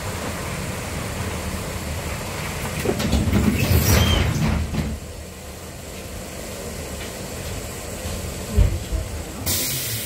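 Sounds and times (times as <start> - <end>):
tram rattling and clanking: 0.0 - 10.0
tram wheels squealing: 3.3 - 4.7.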